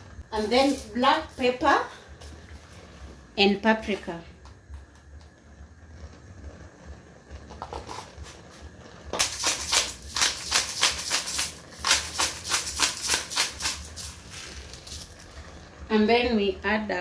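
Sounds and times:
pepper grinder crunching peppercorns: 0:00.4 - 0:01.5, 0:09.1 - 0:15.5.

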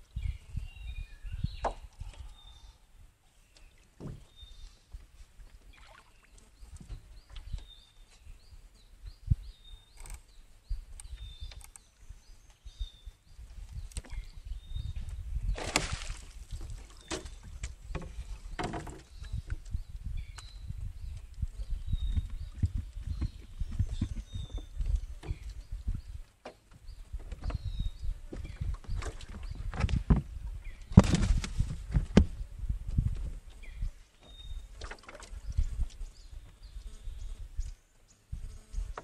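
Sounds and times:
low wind rumble: 0:00.0 - 0:03.2, 0:06.6 - 0:39.0
fish splashing out of water: 0:15.6 - 0:16.4.

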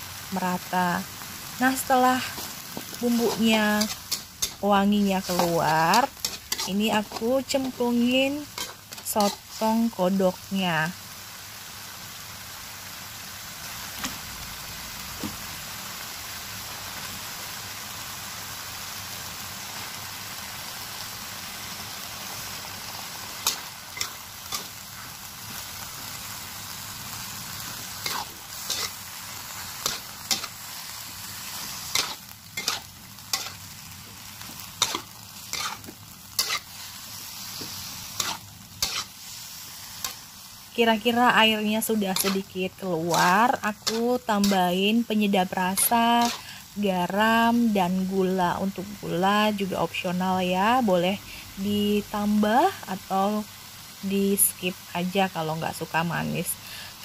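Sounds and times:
food sizzling in a wok: 0:00.0 - 0:57.0
spatula scraping against pan: 0:02.2 - 0:09.8, 0:27.9 - 0:30.6, 0:31.4 - 0:33.6, 0:34.6 - 0:36.8, 0:37.6 - 0:39.3, 0:42.1 - 0:42.5, 0:45.8 - 0:46.6.

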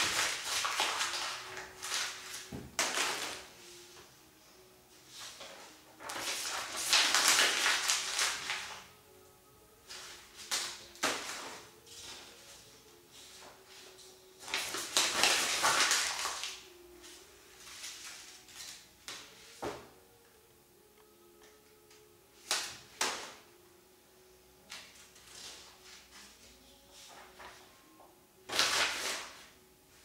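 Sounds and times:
paper crumpling: 0:00.0 - 0:03.5, 0:06.0 - 0:08.9, 0:13.3 - 0:16.6.

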